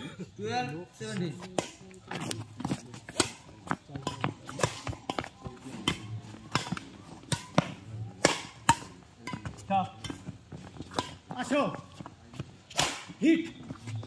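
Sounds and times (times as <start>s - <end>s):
badminton racquets hitting shuttlecock: 3.0s - 11.5s, 12.7s - 13.2s.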